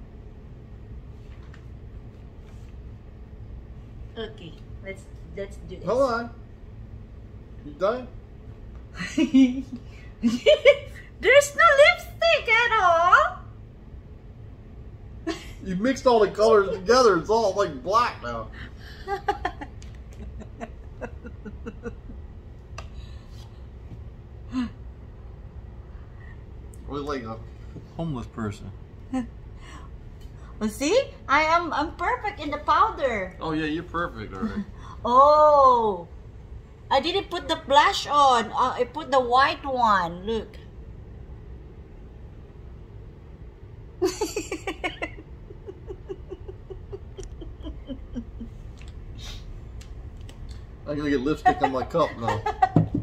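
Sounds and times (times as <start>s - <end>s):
low room rumble: 0.0s - 53.0s
woman laughing: 9.0s - 11.1s, 15.3s - 15.6s, 18.8s - 22.2s, 44.0s - 48.7s, 51.2s - 53.0s
soft laughter: 44.0s - 48.6s.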